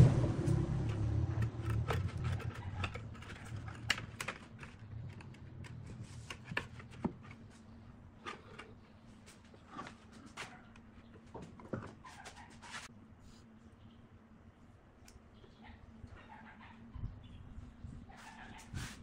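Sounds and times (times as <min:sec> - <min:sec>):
low rumble: 0:00.0 - 0:04.0.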